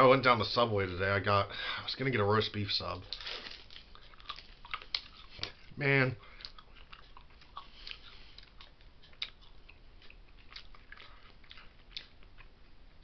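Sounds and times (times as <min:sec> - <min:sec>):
person chewing: 0:03.0 - 0:13.0.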